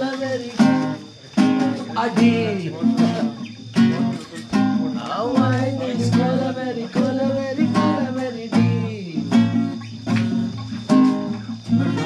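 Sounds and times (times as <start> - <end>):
strummed acoustic guitar: 0.0 - 12.0
person singing: 3.9 - 9.4.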